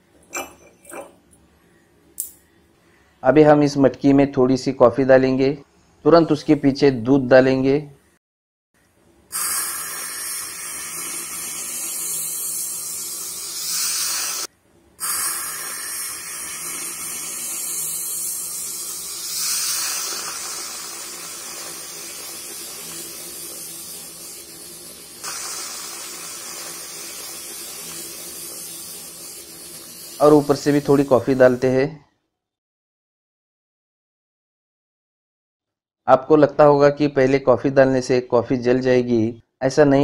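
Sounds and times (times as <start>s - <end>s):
milk hissing and bubbling: 9.3s - 31.6s.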